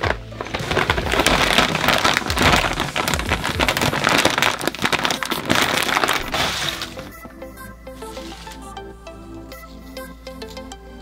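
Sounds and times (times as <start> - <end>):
plastic snack bag crinkling: 0.0 - 7.4, 8.0 - 8.7.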